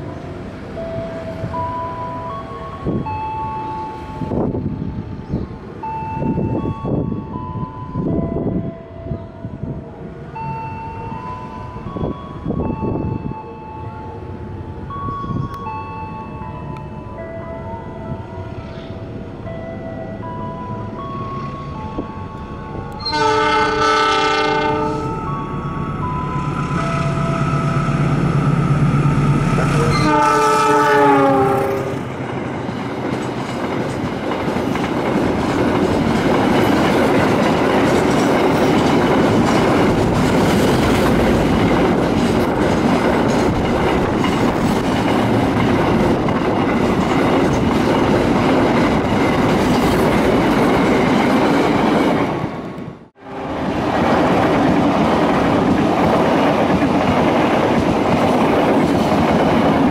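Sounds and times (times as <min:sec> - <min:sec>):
train running noise: 0:00.0 - 0:59.9
freight train wheels clacking: 0:21.2 - 0:59.9
locomotive horn: 0:23.0 - 0:25.3, 0:27.4 - 0:32.1.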